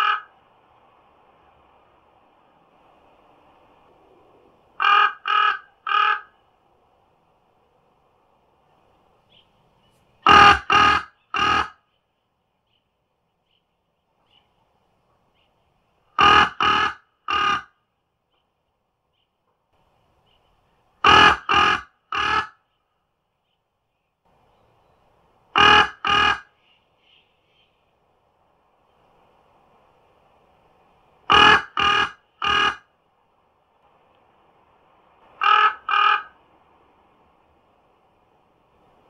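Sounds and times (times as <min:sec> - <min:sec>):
crow cawing: 0:00.0 - 0:00.3, 0:04.8 - 0:06.4, 0:10.2 - 0:11.8, 0:16.2 - 0:17.7, 0:21.0 - 0:22.6, 0:25.6 - 0:26.5, 0:31.3 - 0:32.8, 0:35.4 - 0:36.4.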